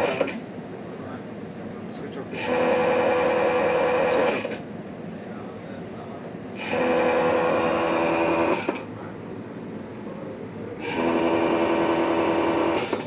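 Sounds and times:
multimeter continuity buzzer: 2.4 - 4.6, 6.6 - 8.9, 10.8 - 13.0.

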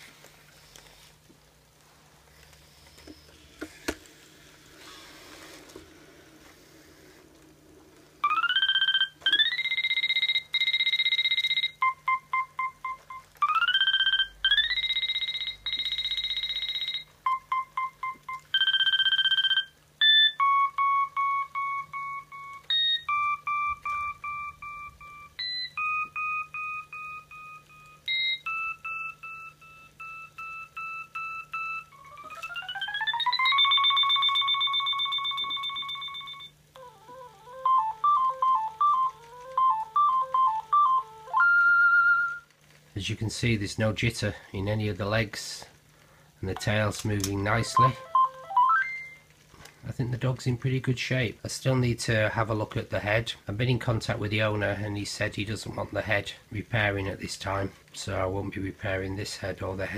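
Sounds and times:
robot dog electronic tones: 8.2 - 42.5, 47.5 - 49.3.

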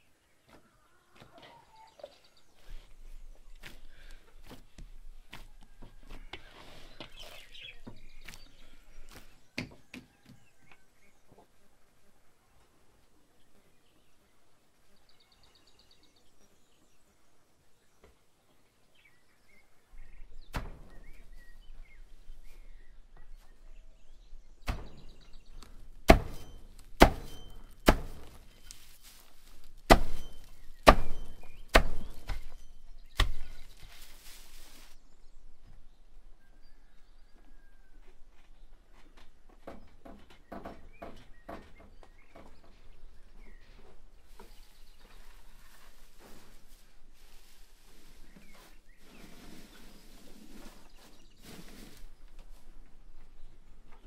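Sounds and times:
axe chopping hay on stump: 24.6 - 33.9
hay rustling: 26.2 - 32.6, 33.4 - 35.0, 44.2 - 52.1.

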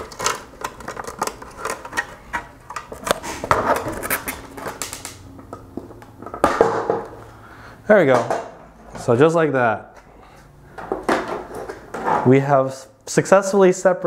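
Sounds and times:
plastic creaking and clicking: 0.0 - 6.4.

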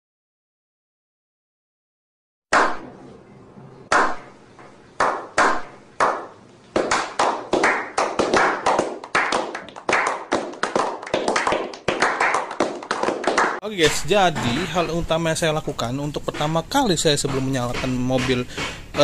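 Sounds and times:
men clapping: 5.0 - 13.6.

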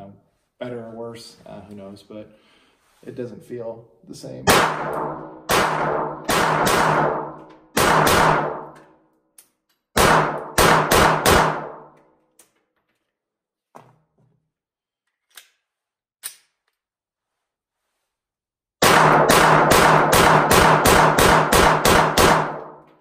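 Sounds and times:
pistol shots: 4.5 - 8.8, 10.0 - 11.9, 18.8 - 22.8.

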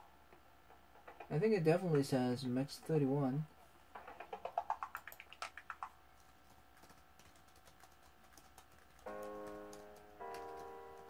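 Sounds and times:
rapid clicks: 3.9 - 11.0
typing on laptop keyboard: 4.0 - 11.0
held musical chords: 9.1 - 11.0.

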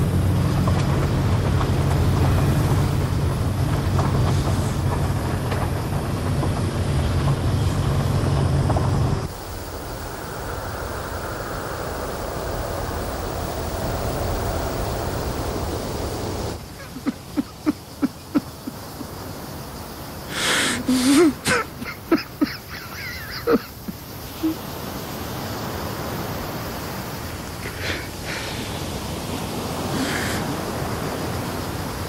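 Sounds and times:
man sobbing: 16.8 - 18.8, 20.8 - 24.6.

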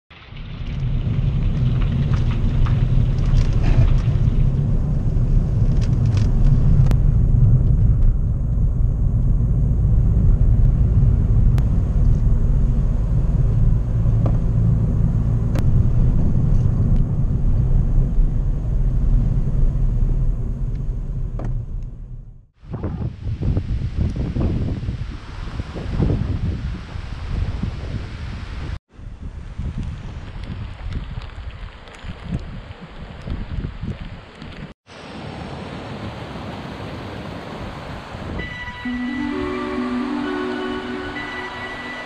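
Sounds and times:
tyres on wet road: 0.1 - 22.0
car engine rumble: 0.2 - 22.6.

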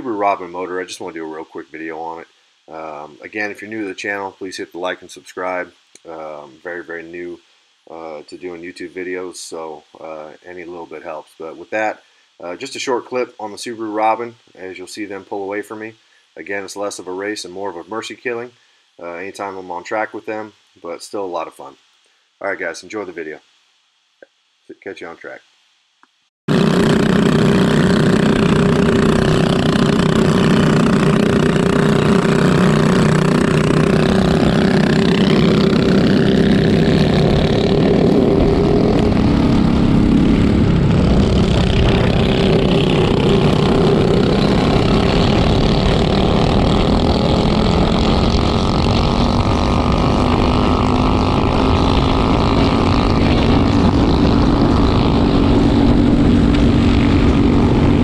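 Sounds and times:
kart engine at racing speed: 26.5 - 58.0
other kart engines: 26.5 - 58.0
wind rumble on microphone: 31.2 - 58.0.

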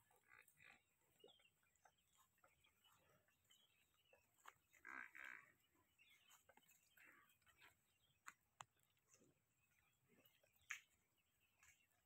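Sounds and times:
water buffalo vocal sound: 0.0 - 8.0.

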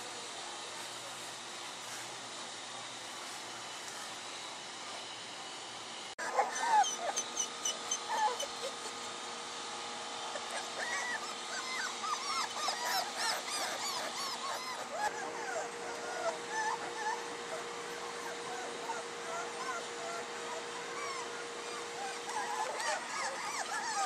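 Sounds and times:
puppies whimpering and yipping: 6.2 - 9.2, 10.3 - 24.0.

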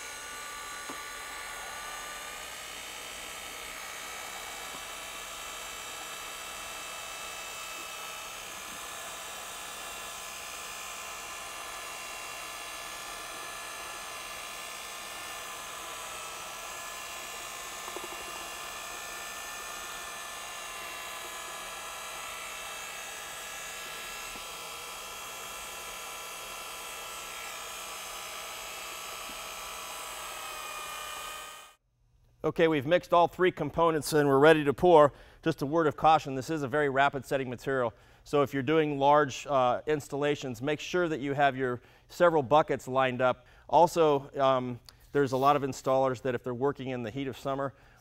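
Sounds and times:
electric drill mixing in bucket: 0.0 - 31.8.

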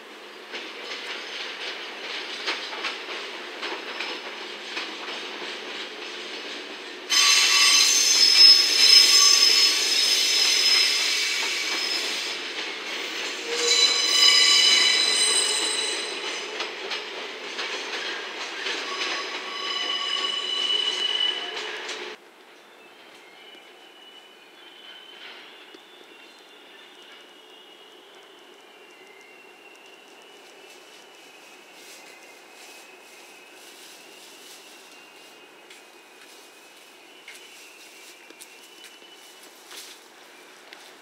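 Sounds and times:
wheels squealing on rails: 0.4 - 41.0
train wheels clicking over rail joints: 0.5 - 9.5, 11.4 - 20.3.

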